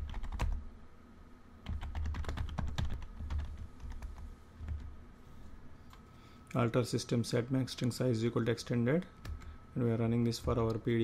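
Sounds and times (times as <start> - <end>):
typing on keyboard: 0.0 - 0.6, 1.6 - 4.9.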